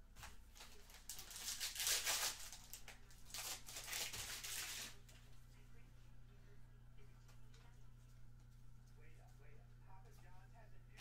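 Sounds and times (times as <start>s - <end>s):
foil wrapper crinkling and tearing: 0.6s - 5.0s.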